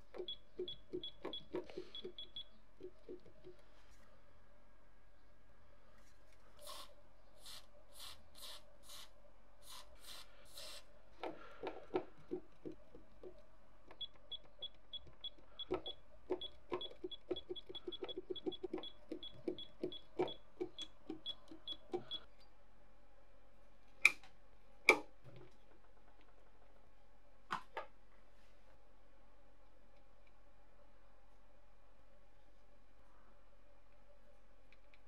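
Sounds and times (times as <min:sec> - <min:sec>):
aerosol spray hissing: 0:06.6 - 0:10.8.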